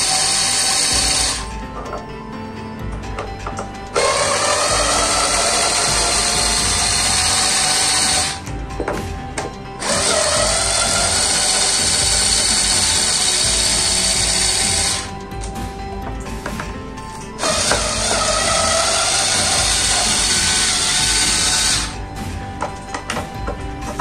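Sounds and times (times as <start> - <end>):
electric drill whirring: 0.0 - 2.0, 2.8 - 8.5, 9.8 - 15.6, 17.2 - 22.2.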